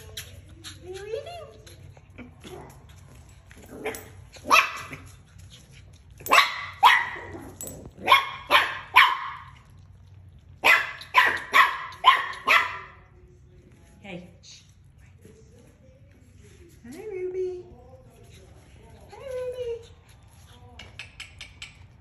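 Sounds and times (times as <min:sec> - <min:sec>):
puppies barking: 0:06.2 - 0:07.4, 0:08.0 - 0:09.6, 0:10.6 - 0:13.0.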